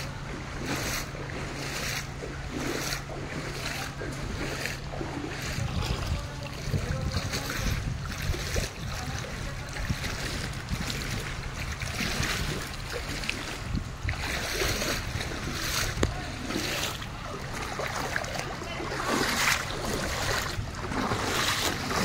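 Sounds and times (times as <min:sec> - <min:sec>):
floodwater rushing and sloshing: 0:00.0 - 0:22.0
wind rumble on microphone: 0:00.0 - 0:22.0.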